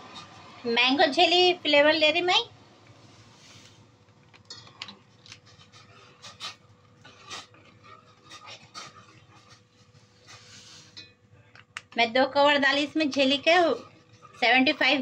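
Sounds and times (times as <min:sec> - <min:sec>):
metal spoon scraping a saucepan: 0:04.5 - 0:11.2.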